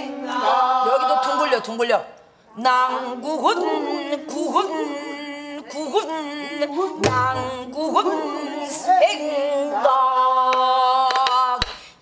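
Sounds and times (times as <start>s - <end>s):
woman singing with wavering voice: 2.5s - 11.8s
low drum stroke: 7.0s - 7.8s.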